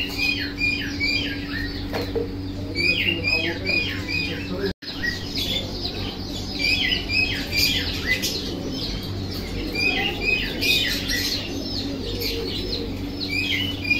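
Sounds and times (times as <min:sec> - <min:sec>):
small birds chirping and squawking: 0:00.0 - 0:13.9
steady low hum: 0:00.0 - 0:13.9.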